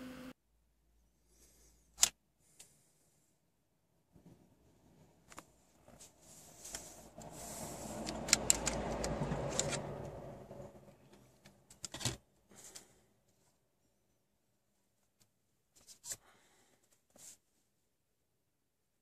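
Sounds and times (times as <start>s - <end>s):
rushing rubbing sound: 5.8s - 10.0s.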